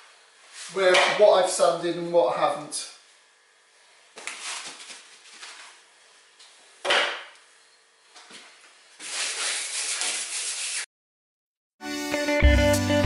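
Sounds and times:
dry rubbing on panel: 9.0 - 10.9.

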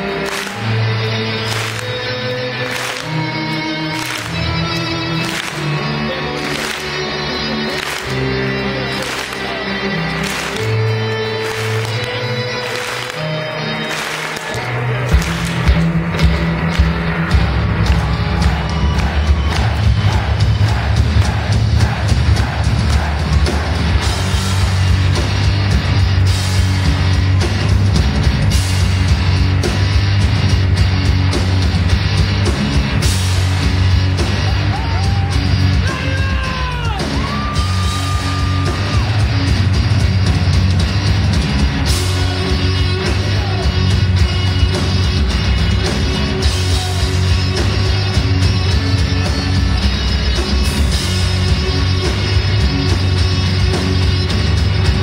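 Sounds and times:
heavy metal on amplified cellos: 0.0 - 55.0
pounding drums: 15.0 - 55.0.

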